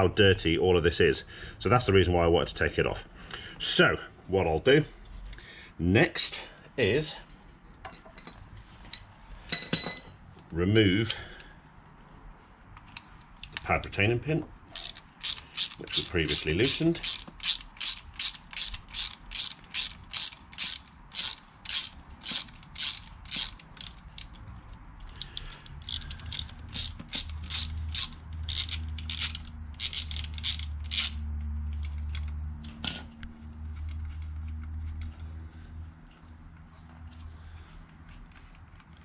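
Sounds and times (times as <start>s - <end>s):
socket ratchet clicking: 14.8s - 24.4s, 25.0s - 32.8s.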